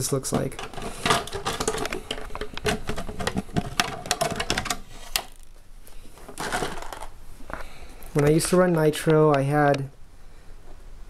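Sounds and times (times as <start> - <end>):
plastic car shell clicking and rattling: 0.2 - 5.4, 6.3 - 7.2.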